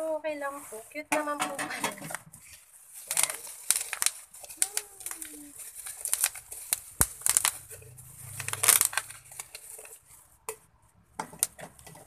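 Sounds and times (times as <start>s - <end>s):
plastic packaging rustling and crackling: 0.0s - 12.0s.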